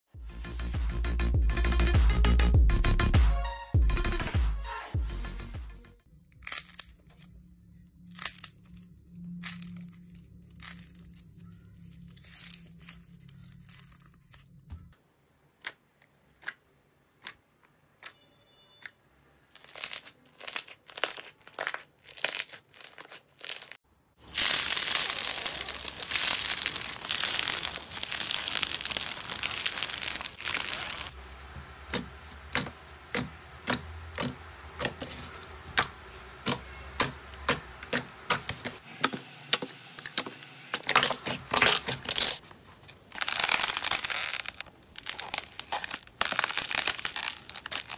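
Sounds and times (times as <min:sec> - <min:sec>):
slime popping and crackling: 0:19.5 - 0:31.2, 0:43.1 - 0:47.9.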